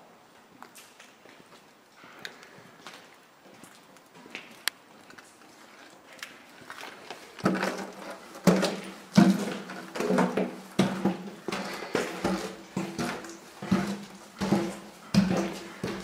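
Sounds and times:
heavy footsteps down stairs: 6.8 - 16.0.

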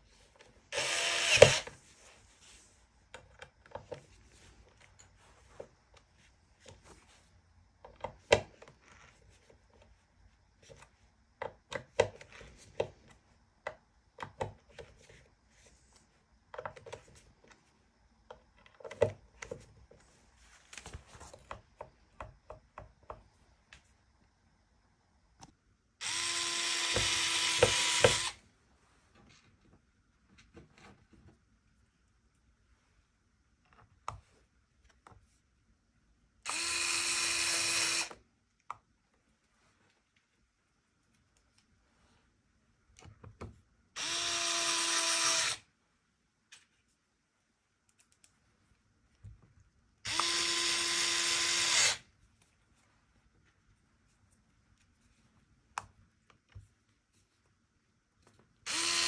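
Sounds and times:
small electric drill motor: 0.7 - 1.7, 26.0 - 28.4, 36.4 - 38.2, 44.0 - 45.6, 50.0 - 52.0, 58.7 - 59.0.

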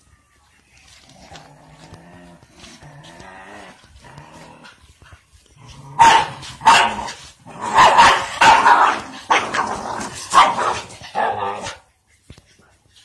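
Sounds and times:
dog growling: 0.9 - 5.0
dog barking sharply: 7.8 - 9.4.

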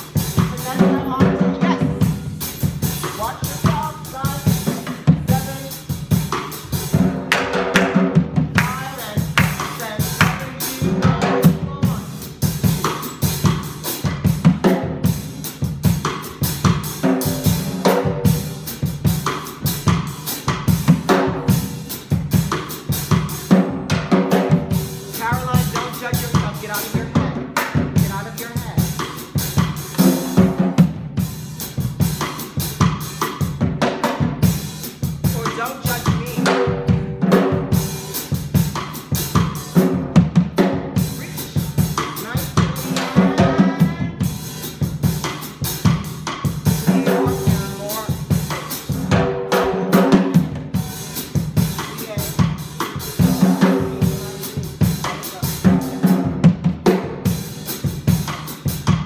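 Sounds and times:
drum kit beat: 0.0 - 59.0
pitched melody: 42.2 - 44.4.

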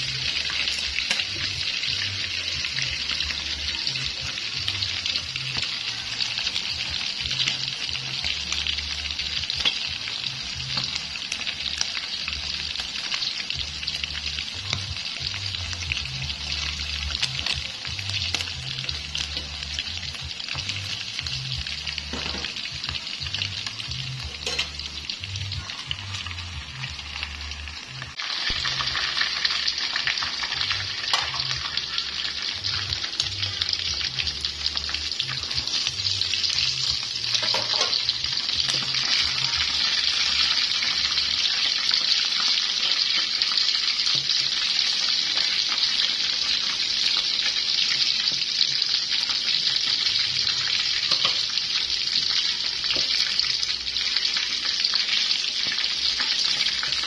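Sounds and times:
meat sizzling in hot oil: 0.0 - 57.0.

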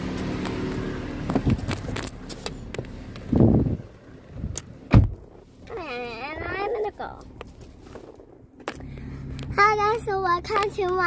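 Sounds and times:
car engine idling: 0.0 - 11.0
loud thump: 4.9 - 5.2.

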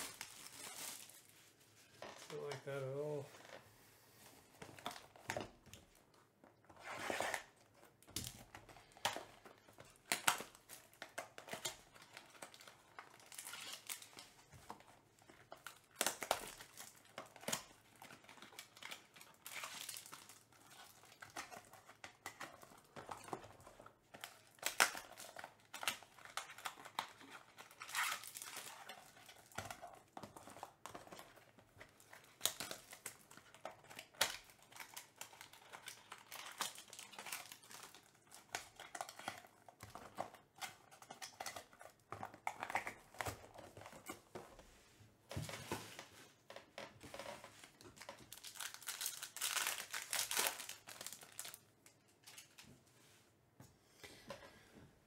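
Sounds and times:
wrapper crinkling and tearing: 0.0 - 3.2, 6.8 - 44.2, 47.1 - 52.6.

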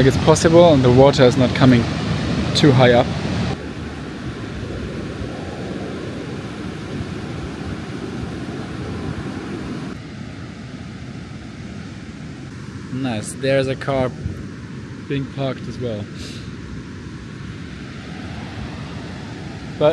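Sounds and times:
surf breaking on beach: 0.0 - 10.0
wind on microphone: 0.0 - 12.6, 14.0 - 15.1, 16.5 - 19.9.

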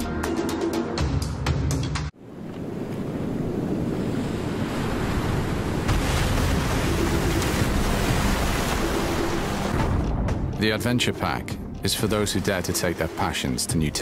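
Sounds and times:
ocean waves breaking against rocks: 2.2 - 10.0.

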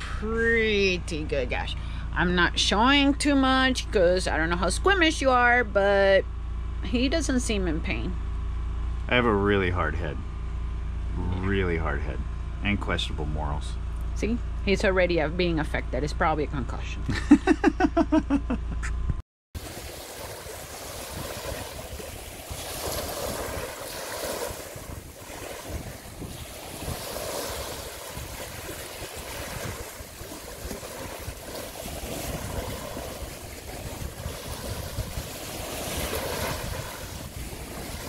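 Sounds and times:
small waves washing onto beach: 19.6 - 38.0
wind buffeting microphone: 20.3 - 38.0.

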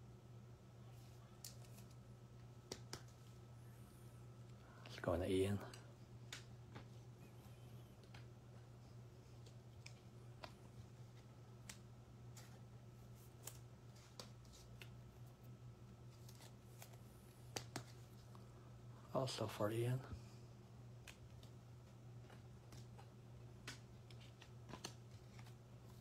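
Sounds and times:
faint low hum: 0.0 - 26.0
trading cards clicking and rustling: 1.0 - 3.4, 5.5 - 15.1, 16.0 - 18.3, 20.9 - 26.0.

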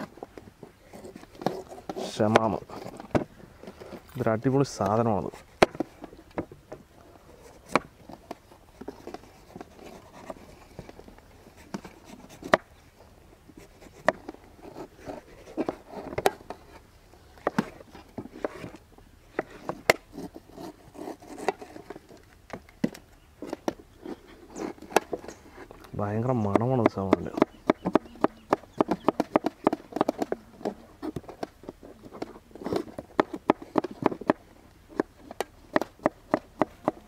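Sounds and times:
knife scraping through fruit: 0.0 - 4.2, 19.4 - 22.2, 23.4 - 25.9.

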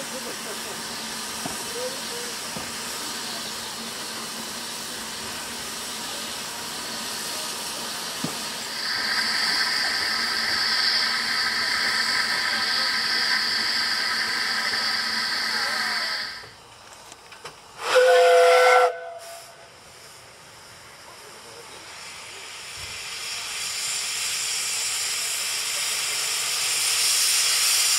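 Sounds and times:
steam locomotive hissing: 0.0 - 27.9
steam whistle blast: 17.8 - 19.6.

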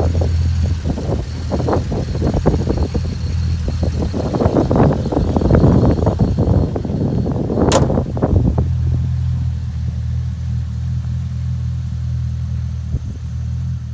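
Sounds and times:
car engine idling: 0.0 - 13.9
sharp click: 7.7 - 8.0.

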